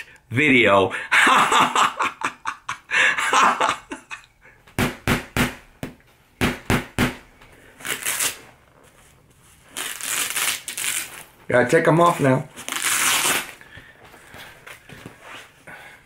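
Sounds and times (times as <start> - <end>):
person laughing: 1.1 - 4.3
boxing glove thumps: 4.7 - 7.3.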